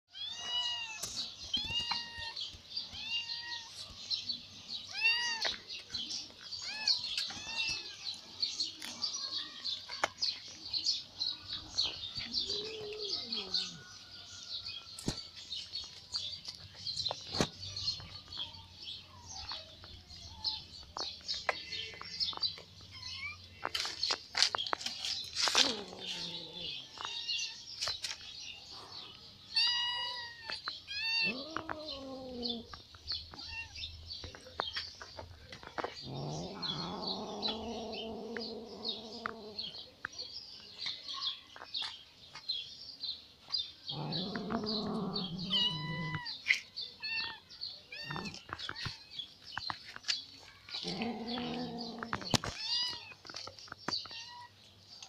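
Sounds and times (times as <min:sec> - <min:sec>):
small birds chirping: 0:00.1 - 0:55.0
cat meowing: 0:04.9 - 0:05.5, 0:29.5 - 0:32.7, 0:33.3 - 0:33.8, 0:44.0 - 0:46.3
cat yowling: 0:29.5 - 0:32.7, 0:44.0 - 0:46.3.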